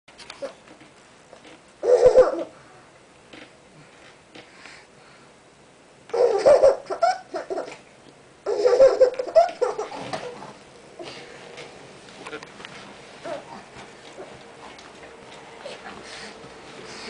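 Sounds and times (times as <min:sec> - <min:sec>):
baby laughing: 0:01.8 - 0:02.5, 0:06.1 - 0:10.4.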